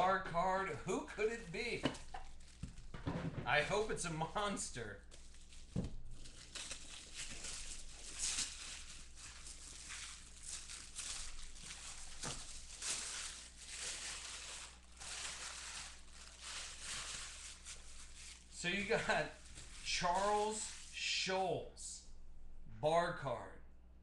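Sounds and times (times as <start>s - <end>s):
tissue paper crinkling: 1.2s - 3.0s, 5.0s - 21.0s.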